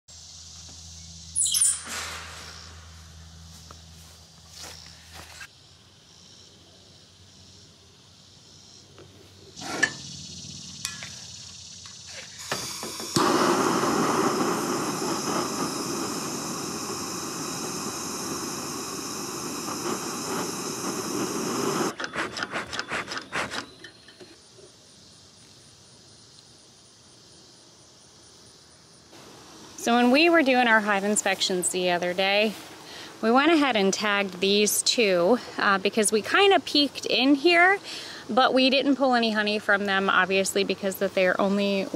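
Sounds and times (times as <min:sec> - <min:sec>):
torch flame hissing: 0:09.6 - 0:22.3.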